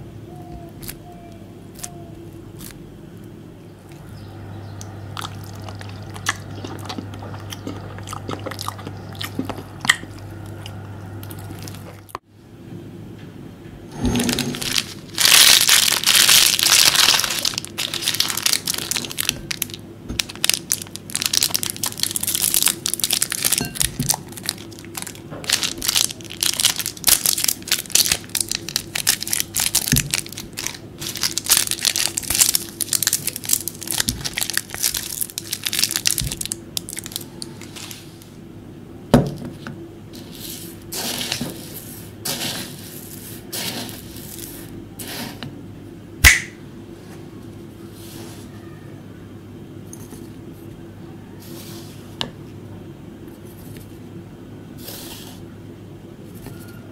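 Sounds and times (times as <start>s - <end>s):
plastic wrappers crinkling and tearing: 14.4s - 38.3s.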